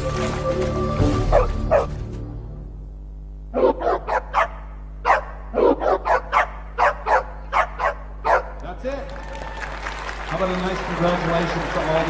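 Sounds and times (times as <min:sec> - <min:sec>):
music: 0:00.0 - 0:02.8
dog barking: 0:01.3 - 0:01.9, 0:03.6 - 0:08.6.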